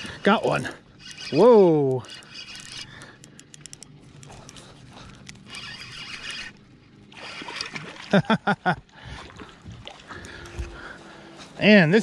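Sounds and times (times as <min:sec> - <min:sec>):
fish splashing in water: 0:07.1 - 0:08.2.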